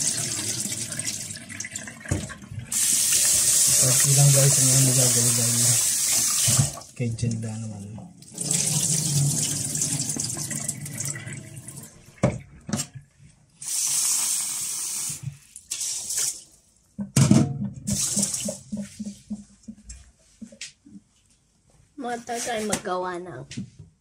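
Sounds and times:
tap water pouring into sink: 0:00.0 - 0:07.4, 0:08.2 - 0:16.4, 0:17.7 - 0:19.3.

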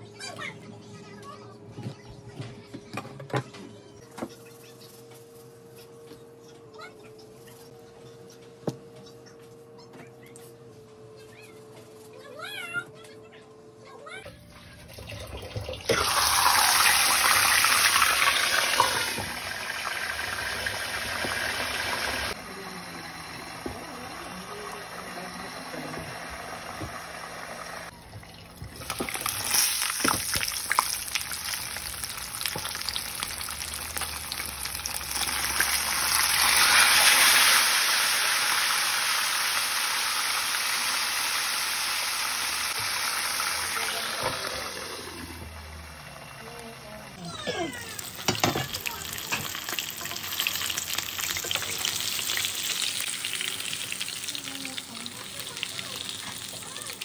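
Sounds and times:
fish frying in hot oil: 0:15.9 - 0:22.4, 0:23.1 - 0:47.1, 0:47.8 - 0:57.0.

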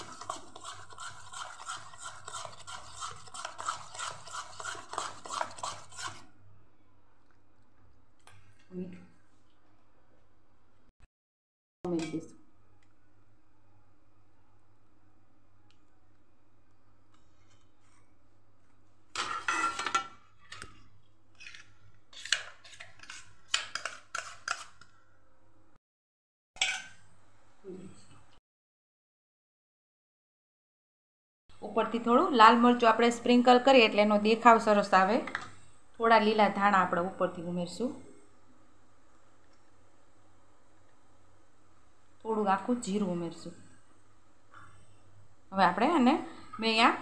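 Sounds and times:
spoon beating batter in steel bowl: 0:00.0 - 0:06.3, 0:19.1 - 0:24.9.

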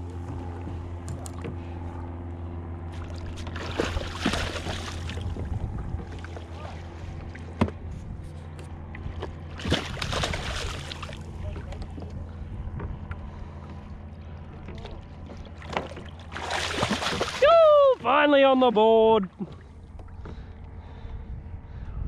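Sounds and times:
water splashing and sloshing: 0:00.0 - 0:21.0
steady low hum: 0:00.0 - 0:22.0.

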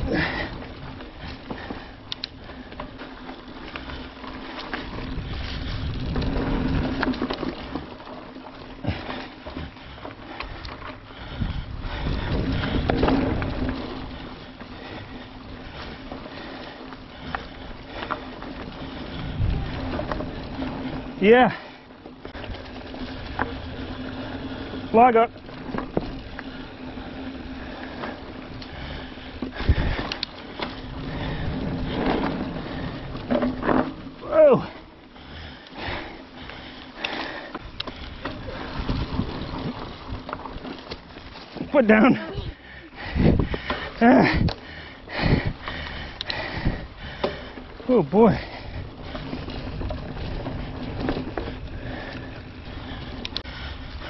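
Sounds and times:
bike tires rolling on dirt: 0:00.0 - 0:54.0
bike clicks and knocks: 0:00.2 - 0:11.1, 0:25.4 - 0:34.2, 0:43.4 - 0:47.7
wind on the microphone: 0:11.2 - 0:13.8, 0:42.1 - 0:47.0.

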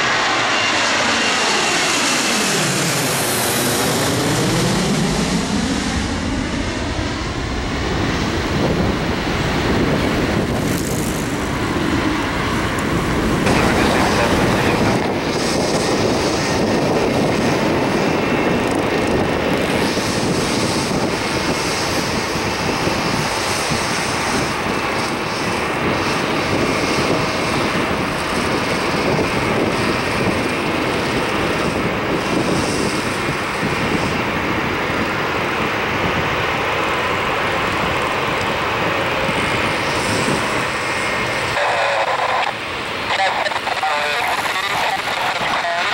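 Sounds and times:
jet engines running steadily: 0:00.0 - 0:45.9.

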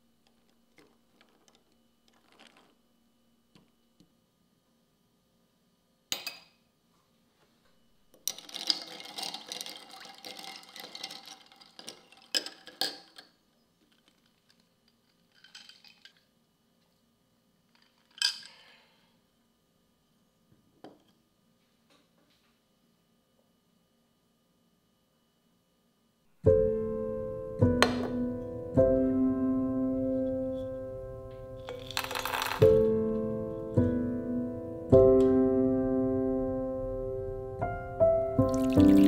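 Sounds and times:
glass straw stirring ice cubes: 0:08.3 - 0:16.2, 0:31.6 - 0:32.9, 0:38.5 - 0:39.0.

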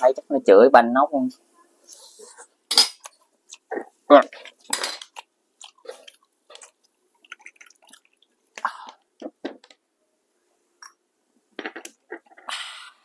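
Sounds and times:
chewing: 0:03.0 - 0:09.0.

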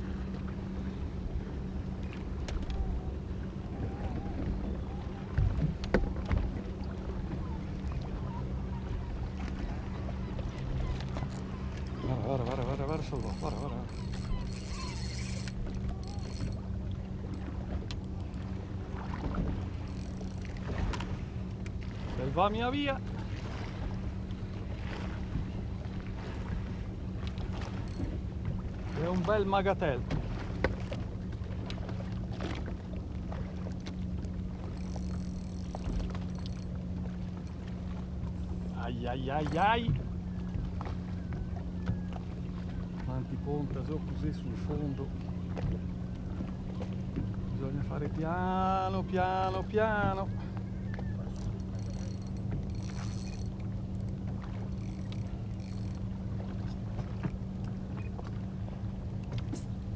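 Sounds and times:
boat motor humming: 0:00.0 - 0:59.9
faint clicks: 0:13.0 - 0:16.6, 0:34.7 - 0:36.7, 0:50.9 - 0:56.8.

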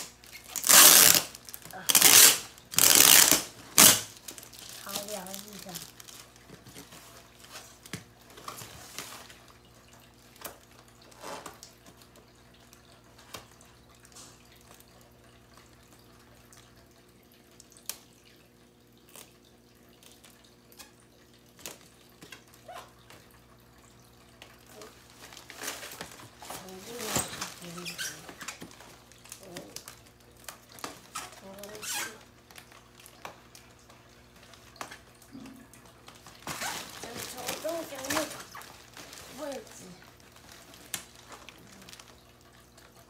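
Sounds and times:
plastic wrapping crinkling: 0:00.0 - 0:09.6, 0:24.7 - 0:35.1, 0:35.9 - 0:43.0.

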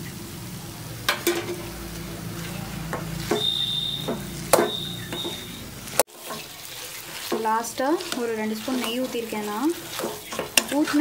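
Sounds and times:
metal spoon stirring in pan: 0:01.0 - 0:11.0
thin high steady tone: 0:01.3 - 0:05.8
spoon knocking against pan: 0:02.9 - 0:05.6, 0:09.9 - 0:11.0.

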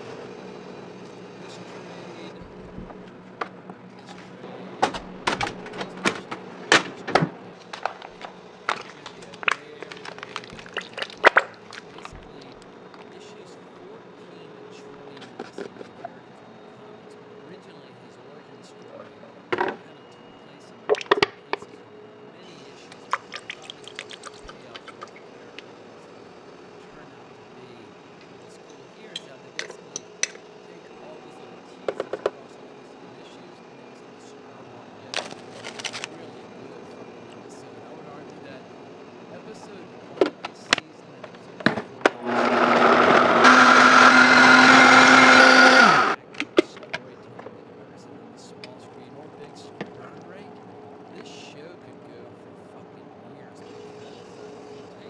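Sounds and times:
faint steady hiss: 0:00.0 - 0:42.2, 0:45.2 - 0:55.0
blender motor running: 0:42.1 - 0:46.2.

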